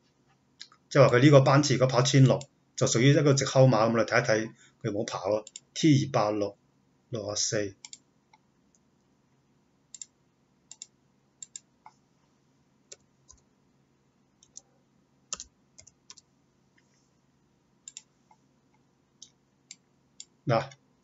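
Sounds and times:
faint low hum: 0:00.0 - 0:21.0
mouse and keyboard clicks: 0:10.7 - 0:11.7.

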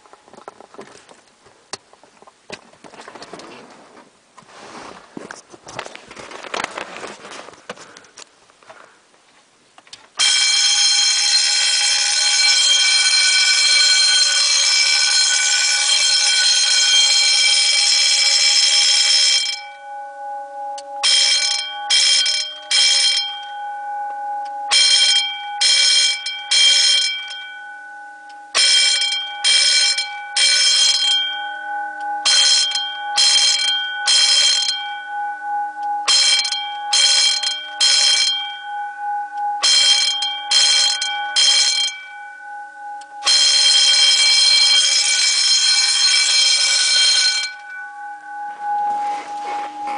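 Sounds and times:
handling noise: 0:00.0 - 0:10.2, 0:47.4 - 0:49.9
fire alarm bells ringing: 0:10.2 - 0:49.9.

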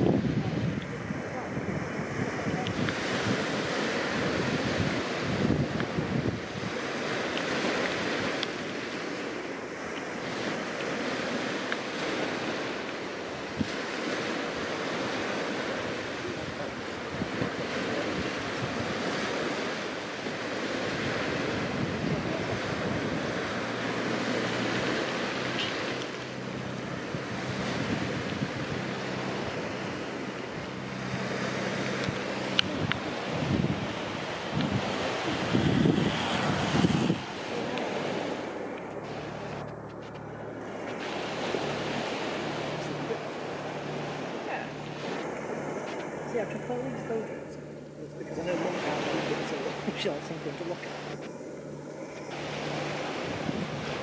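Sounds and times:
sea waves on shingle and rock: 0:00.0 - 0:54.0
wind buffeting microphone: 0:00.0 - 0:54.0.

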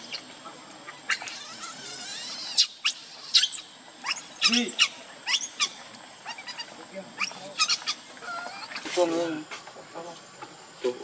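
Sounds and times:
lower monkey call: 0:00.0 - 0:09.0
baby monkey squeaking: 0:01.1 - 0:08.9.

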